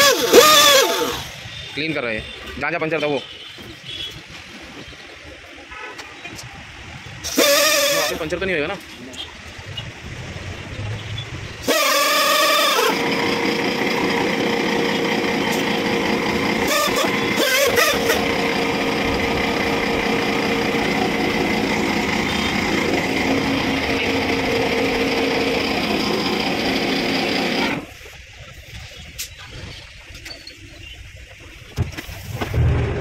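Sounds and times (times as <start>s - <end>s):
pneumatic buffer whining: 0.0s - 1.3s, 7.2s - 8.2s, 11.6s - 27.9s.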